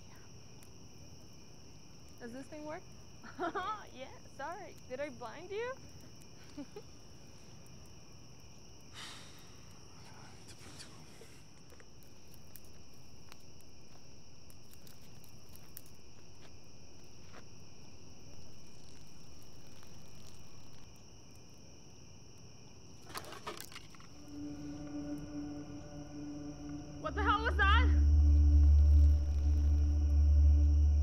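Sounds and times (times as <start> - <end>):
faint crackles: 0.0 - 30.8
crickets chirping: 0.0 - 31.0
rustling and cracking in undergrowth: 5.3 - 24.2.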